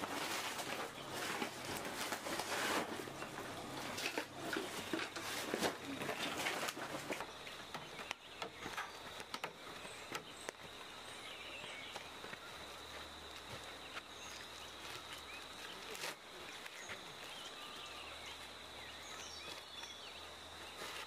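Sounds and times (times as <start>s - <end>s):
cloth bag rustling: 0.0s - 7.3s.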